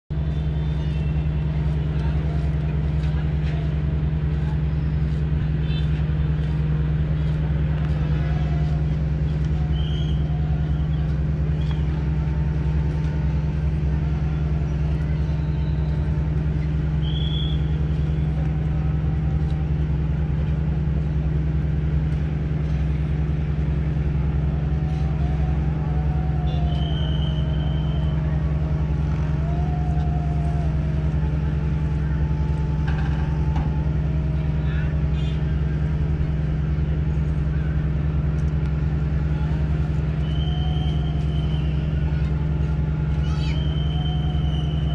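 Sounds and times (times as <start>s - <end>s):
ship engine droning: 0.1s - 44.9s.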